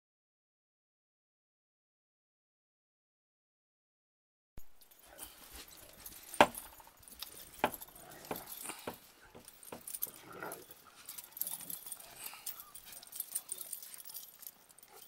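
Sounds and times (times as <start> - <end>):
sharp clicks and knocks: 6.3 - 10.1.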